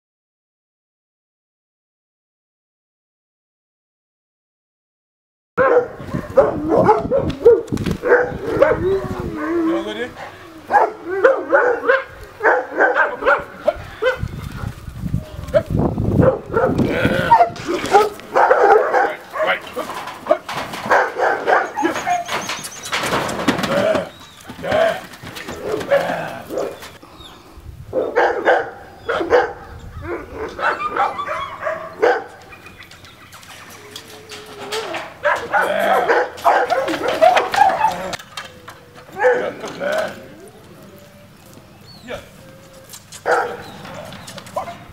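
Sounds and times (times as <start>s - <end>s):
dog barking: 5.6s - 9.0s, 10.7s - 14.3s, 16.2s - 19.6s, 20.3s - 22.2s, 25.6s - 26.8s, 27.9s - 29.7s, 30.4s - 32.4s, 35.2s - 38.1s, 39.2s - 39.6s, 43.2s - 43.8s, 44.5s - 44.9s.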